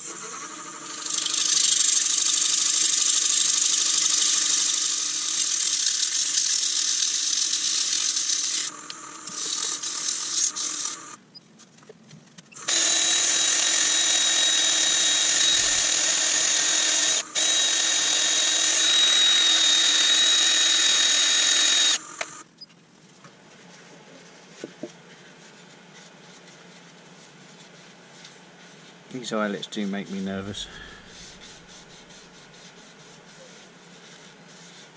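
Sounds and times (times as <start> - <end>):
wood lathe spinning: 0.0 - 11.2, 12.6 - 22.4, 30.2 - 34.9
sanding disc whining against wood: 0.6 - 11.1, 12.6 - 22.4, 30.0 - 34.9
hand sanding wood: 9.3 - 11.0, 30.0 - 34.9.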